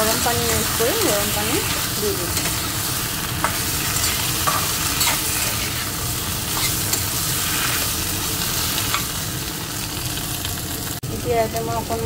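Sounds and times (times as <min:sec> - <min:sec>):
food sizzling in oil: 0:00.0 - 0:12.0
metal spatula scraping pan: 0:03.4 - 0:08.0.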